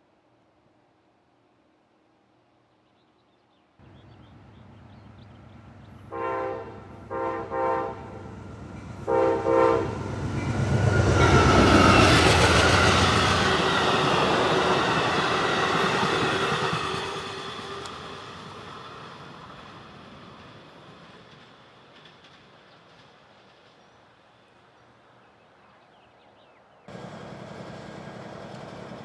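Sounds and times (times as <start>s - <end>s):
diesel locomotive engine: 3.8s - 25.2s, 26.9s - 29.0s
train horn blasts: 6.0s - 10.2s
train wheels clattering: 26.9s - 29.0s.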